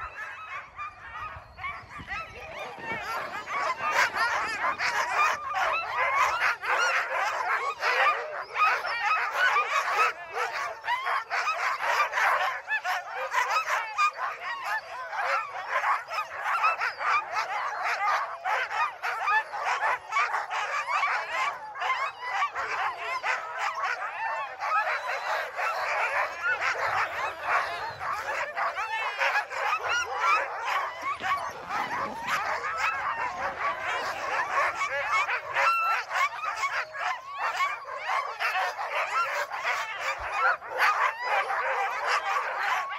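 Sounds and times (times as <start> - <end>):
sled dogs barking and howling: 0.0 - 42.9.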